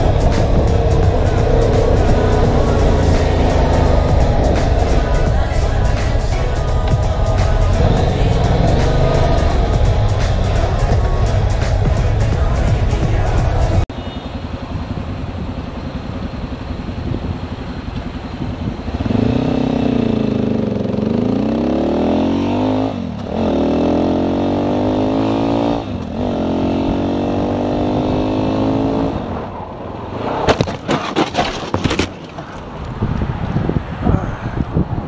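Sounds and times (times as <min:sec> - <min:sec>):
motorcycle engine accelerating: 0:00.0 - 0:13.8, 0:14.6 - 0:29.5
motorcycle crashing knocks and scrapes: 0:30.4 - 0:32.6.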